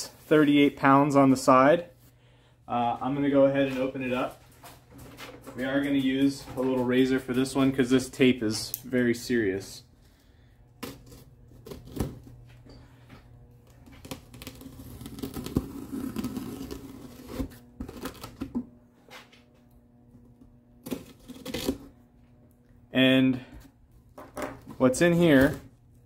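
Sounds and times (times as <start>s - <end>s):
razor blade slicing packing tape: 10.8s - 12.2s, 13.9s - 18.5s, 20.8s - 21.9s.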